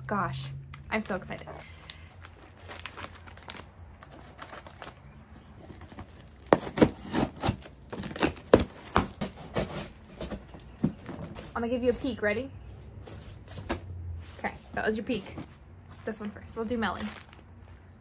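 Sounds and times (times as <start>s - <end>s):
cardboard flaps rustling: 5.6s - 12.2s
scissors ripping packing tape: 6.1s - 9.7s.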